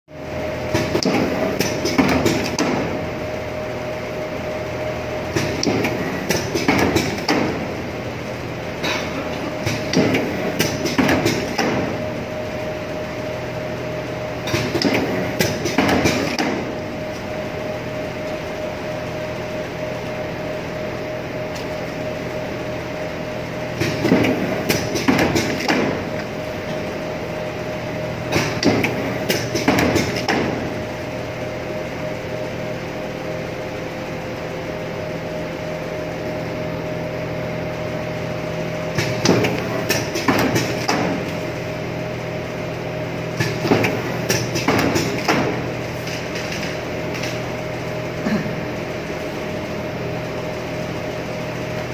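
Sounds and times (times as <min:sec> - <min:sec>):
machine humming and whining: 0:00.1 - 0:51.9
machine clacking knocks: 0:28.3 - 0:30.6, 0:39.0 - 0:41.2, 0:43.4 - 0:45.6.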